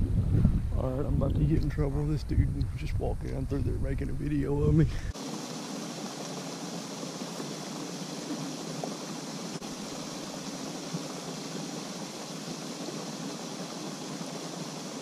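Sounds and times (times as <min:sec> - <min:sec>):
fountain water spray hissing: 0:05.0 - 0:15.0.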